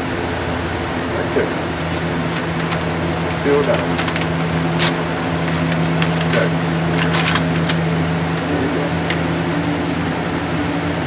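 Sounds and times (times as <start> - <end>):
box fan humming: 0.0 - 11.0
wallpaper crinkling: 1.8 - 7.9.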